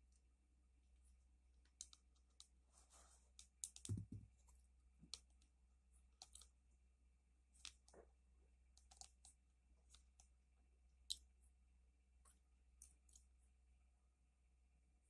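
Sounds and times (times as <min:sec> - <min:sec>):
dull stone knock: 0:03.9 - 0:04.3.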